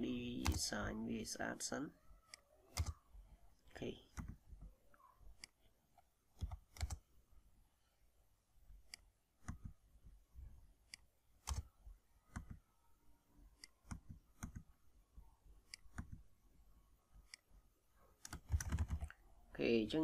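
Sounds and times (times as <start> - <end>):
keyboard keystrokes: 2.3 - 3.0, 6.4 - 7.0, 11.4 - 12.6, 18.2 - 19.2.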